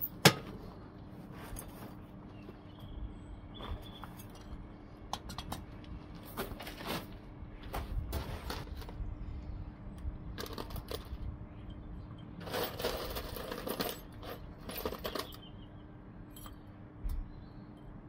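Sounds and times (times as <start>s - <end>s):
scrap metal clinking: 10.4s - 15.5s.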